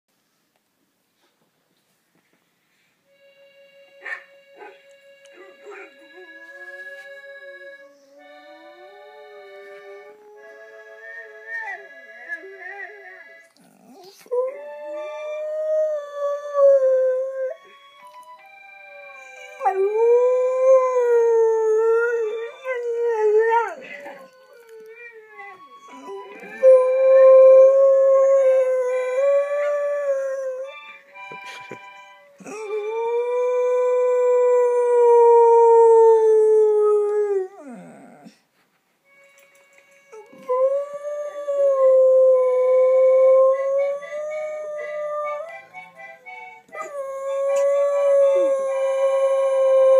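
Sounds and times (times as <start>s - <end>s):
dog howling: 19.1s - 30.7s, 32.4s - 38.4s, 46.8s - 49.9s.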